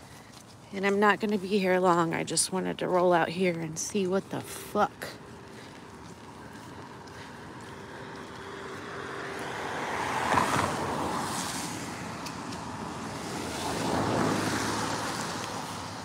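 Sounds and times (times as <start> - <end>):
car passing by: 5.0 - 16.0.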